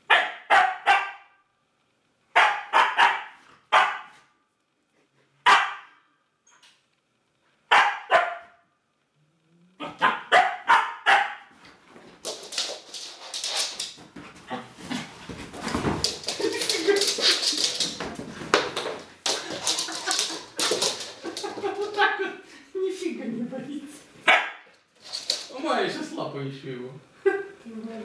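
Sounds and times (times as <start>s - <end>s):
puppy barking: 0.1s - 1.4s, 2.4s - 4.2s, 5.4s - 6.0s, 7.7s - 8.6s, 9.8s - 11.5s, 24.3s - 24.7s
rustling and scuffling: 11.5s - 22.2s.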